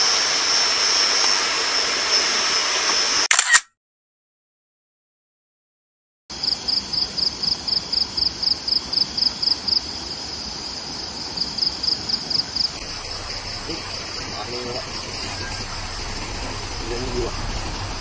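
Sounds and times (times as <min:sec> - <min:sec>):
insect chirping: 0:06.3 - 0:18.0
outdoor hiss: 0:06.4 - 0:18.0.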